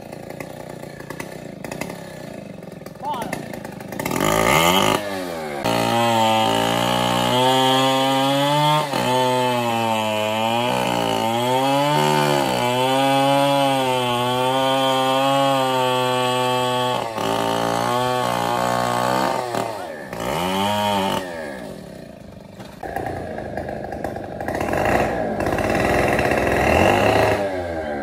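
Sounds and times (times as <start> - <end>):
chainsaw cutting wood: 0.0 - 28.0.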